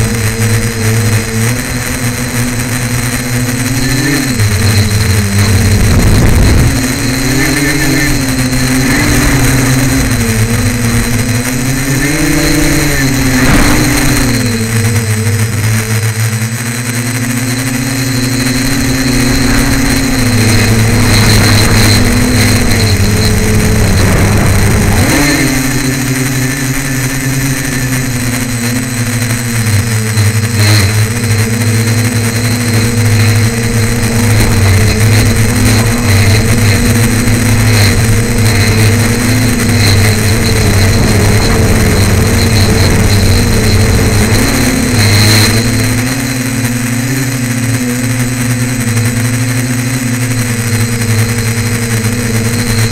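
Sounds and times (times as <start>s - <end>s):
drone motors and propellers buzzing: 0.0s - 52.9s.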